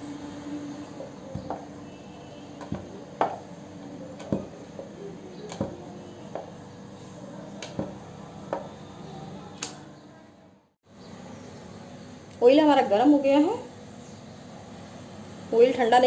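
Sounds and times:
rolling pin knocking on wooden board: 0:02.6 - 0:03.4.

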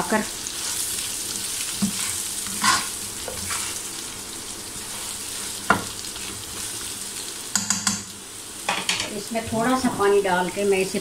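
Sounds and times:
mango slices sizzling in oil: 0:00.0 - 0:11.0
spatula scraping pan: 0:00.4 - 0:06.8.

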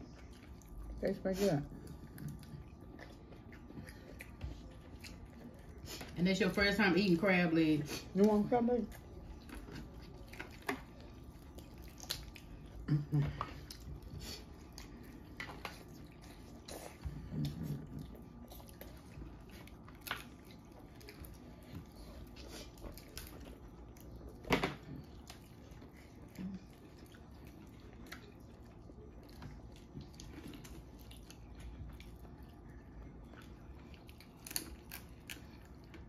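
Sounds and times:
chewing: 0:00.0 - 0:06.2, 0:07.8 - 0:36.0
shells cracking while peeled: 0:34.1 - 0:35.6.

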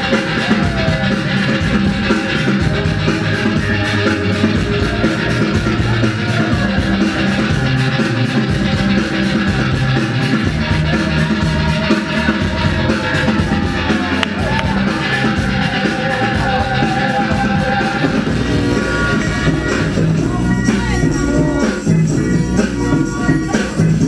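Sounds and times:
loud rock music with guitar: 0:00.0 - 0:24.0.

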